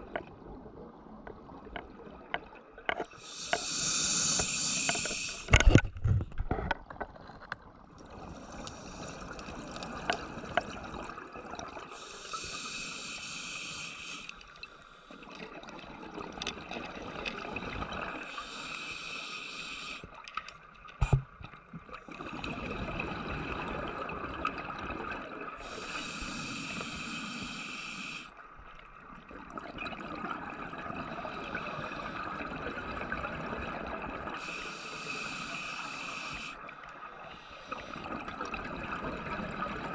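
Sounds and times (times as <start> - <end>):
hissing regulator inhalation: 3.2 - 5.7, 12.0 - 14.4, 18.3 - 20.0, 25.6 - 28.3, 34.4 - 36.6.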